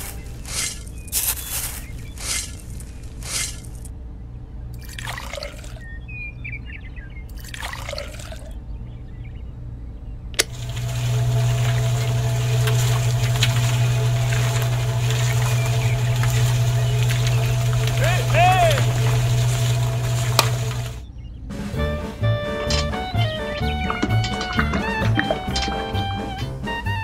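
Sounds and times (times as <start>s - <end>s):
water pouring: 4.8s - 5.8s, 7.3s - 8.6s, 10.4s - 21.0s, 23.5s - 26.3s
small electric motor humming: 10.5s - 21.0s
scoop scraping sand: 10.6s - 21.0s.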